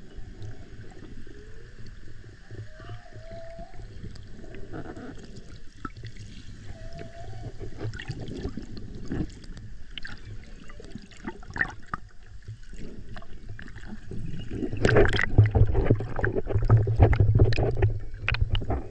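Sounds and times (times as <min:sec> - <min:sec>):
underwater crackle and low hum: 0:00.0 - 0:18.9
humpback whale calls: 0:02.4 - 0:05.3, 0:06.6 - 0:08.0
diver's bubbles bubbling: 0:02.7 - 0:18.9.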